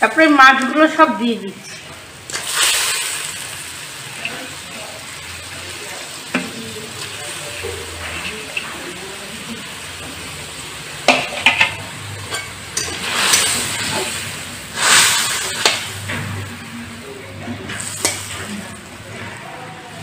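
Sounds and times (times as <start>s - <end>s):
curry sizzling: 0.0s - 20.0s
metal spatula scraping wok: 7.4s - 8.9s, 11.1s - 16.6s, 17.5s - 19.5s.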